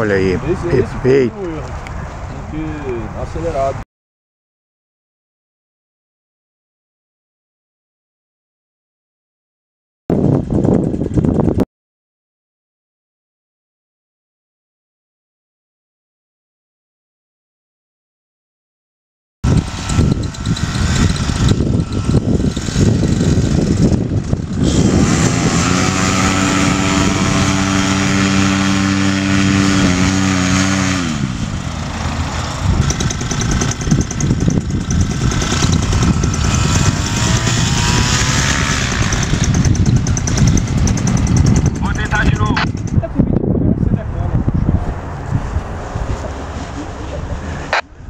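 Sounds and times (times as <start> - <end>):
paramotor engine and propeller: 10.1 - 11.6, 19.4 - 48.0.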